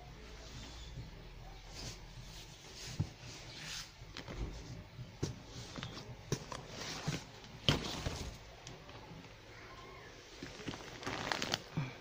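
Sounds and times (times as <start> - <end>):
fabric rustling: 10.3 - 11.8.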